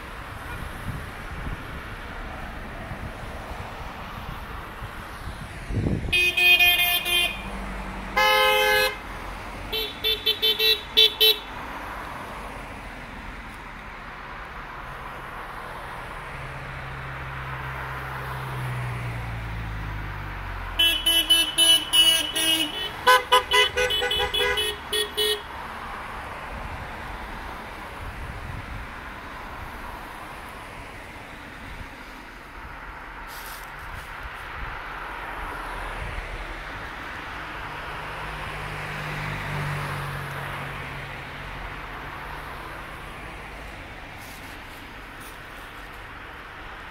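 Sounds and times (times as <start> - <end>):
tyre and road noise: 0.0 - 46.9
car horns honking: 6.1 - 7.6, 8.2 - 9.0, 9.7 - 11.5, 20.8 - 25.5
car passing by: 7.2 - 9.7, 11.6 - 20.8, 25.5 - 46.8.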